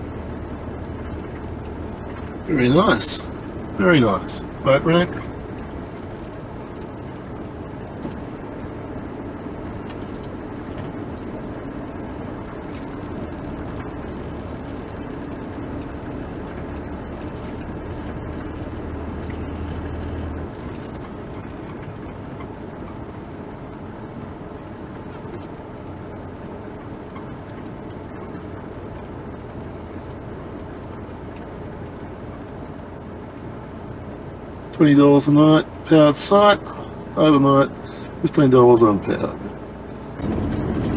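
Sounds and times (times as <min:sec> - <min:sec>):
car engine: 0:00.0 - 0:40.9
road noise: 0:00.0 - 0:40.9.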